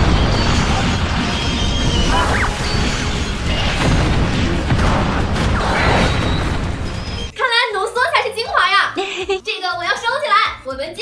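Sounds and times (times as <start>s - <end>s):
dramatic music: 0.0s - 7.4s.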